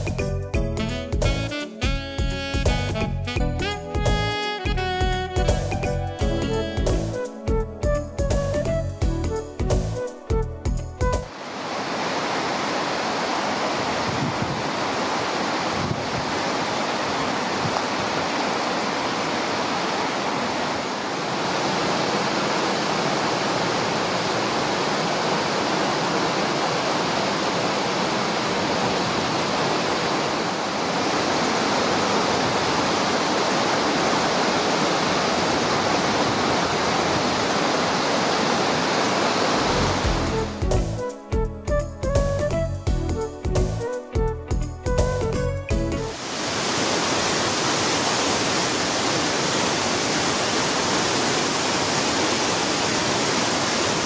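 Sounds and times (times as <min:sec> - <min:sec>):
water rushing over rocks: 0:11.3 - 0:40.6, 0:46.1 - 0:54.0.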